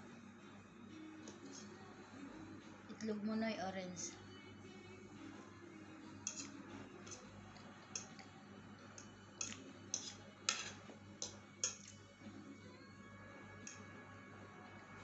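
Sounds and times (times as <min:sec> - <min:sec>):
fork scraping ceramic plate: 0:06.2 - 0:07.3, 0:09.4 - 0:12.0.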